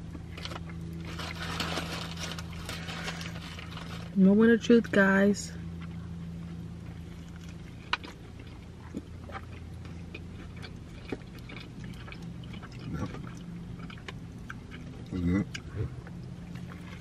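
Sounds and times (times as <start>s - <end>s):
low hum inside car: 0.0s - 17.0s
person chewing: 5.7s - 17.0s.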